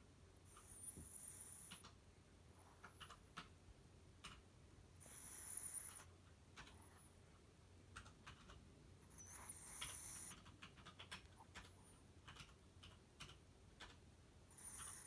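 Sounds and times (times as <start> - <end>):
small clicks and ticks: 1.6 - 2.0, 2.7 - 3.6, 4.2 - 4.5, 5.9 - 7.1, 7.9 - 8.6, 9.8 - 14.0
dog breathing through nose: 5.0 - 6.8, 9.1 - 10.6, 14.5 - 15.0.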